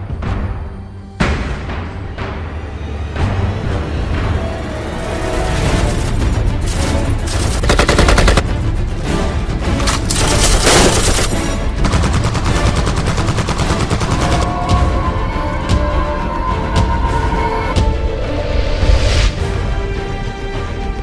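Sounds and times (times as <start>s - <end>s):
dramatic background music: 0.0s - 21.0s
rapid automatic gunfire: 7.3s - 8.5s, 10.3s - 14.4s.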